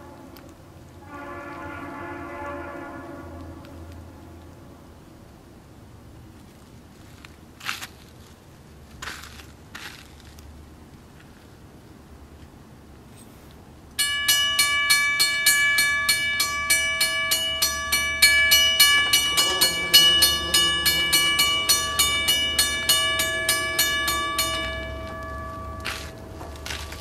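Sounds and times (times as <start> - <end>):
distant locomotive horn: 0.0 - 5.3, 14.8 - 27.0
railroad crossing bell ringing: 14.0 - 27.0.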